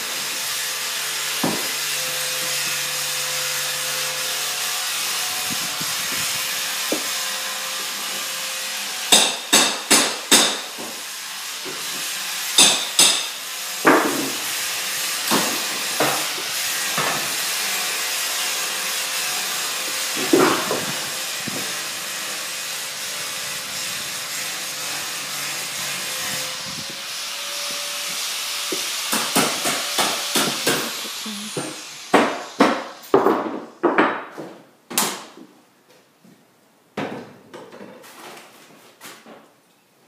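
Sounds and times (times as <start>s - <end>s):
power tool running: 0.0s - 9.2s, 13.3s - 33.1s.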